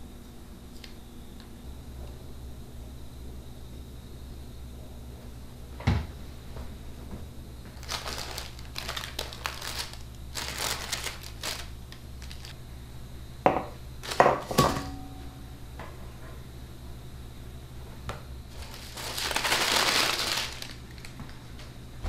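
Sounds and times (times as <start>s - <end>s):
baking parchment crinkling: 7.7s - 12.6s, 14.0s - 14.5s, 18.5s - 21.7s.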